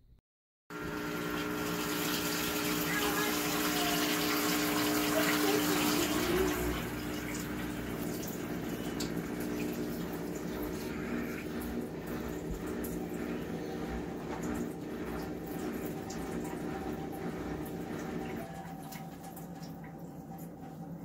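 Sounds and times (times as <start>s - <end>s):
dishwasher pump humming: 0.7s - 21.0s
water splashing into sink: 0.8s - 20.8s.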